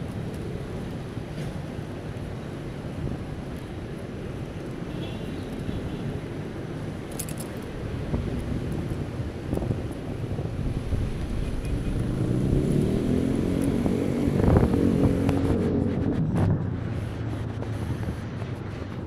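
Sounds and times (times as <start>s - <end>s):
bicycle road rumble: 0.0s - 19.0s
wind buffeting microphone: 5.8s - 19.0s
vehicle engine passing: 11.0s - 19.0s.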